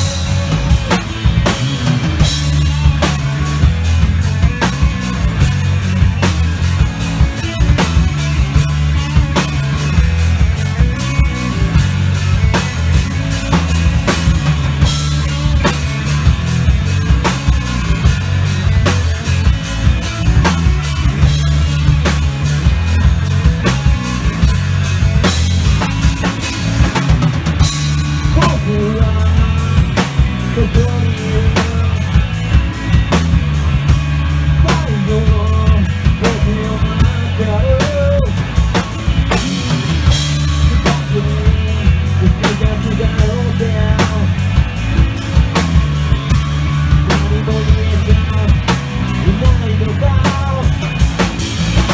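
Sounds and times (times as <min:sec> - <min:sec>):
bass guitar: 0:00.0 - 0:51.9
drum kit: 0:00.0 - 0:51.9
electric guitar: 0:00.0 - 0:51.9
person singing: 0:28.2 - 0:32.2, 0:34.6 - 0:38.5, 0:40.5 - 0:44.4, 0:47.0 - 0:50.9.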